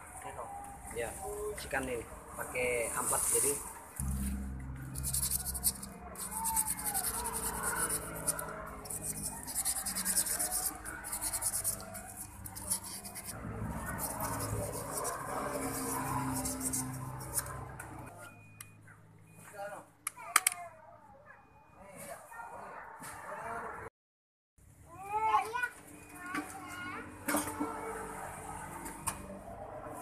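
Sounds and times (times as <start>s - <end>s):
sandpaper scraping metal: 3.0s - 17.8s.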